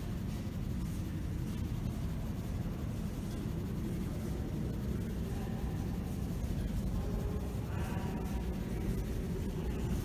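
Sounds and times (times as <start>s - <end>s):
low rumble of train platform: 0.0s - 10.0s.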